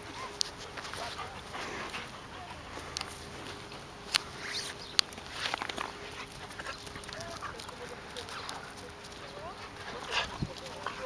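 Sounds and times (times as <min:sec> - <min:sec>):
small ticks: 0:02.7 - 0:11.0.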